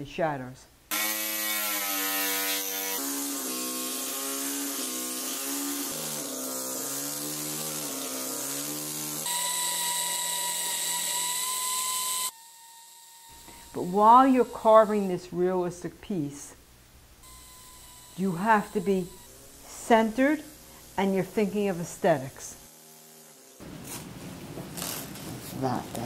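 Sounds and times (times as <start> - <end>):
power tool grinding stone: 0.9 - 15.1, 17.2 - 23.6
steady hiss: 16.6 - 26.0.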